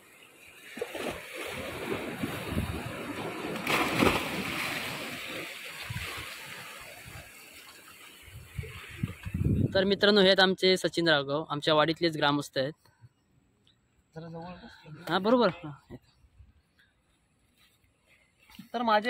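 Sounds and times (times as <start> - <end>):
sea water sloshing against rocks: 0.4 - 9.6
splash into the sea: 0.6 - 9.4.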